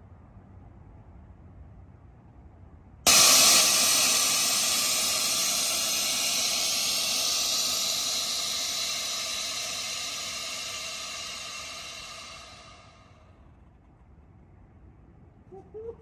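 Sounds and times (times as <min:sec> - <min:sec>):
compressed air hissing: 0:03.1 - 0:13.2.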